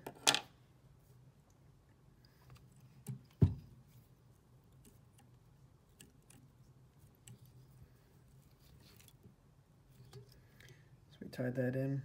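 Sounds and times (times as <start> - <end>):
faint steady hum: 0.0 - 12.0
dull thump: 3.4 - 3.7.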